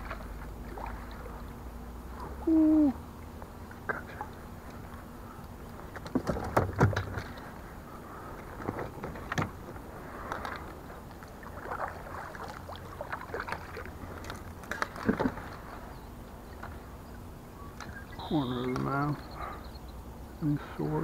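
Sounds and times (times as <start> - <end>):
water splashing: 0.0 - 1.6, 10.0 - 15.8.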